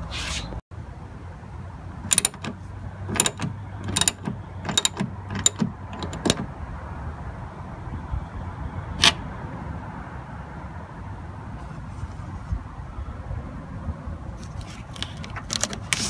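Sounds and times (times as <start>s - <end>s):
socket ratchet clicking: 2.1s - 6.5s.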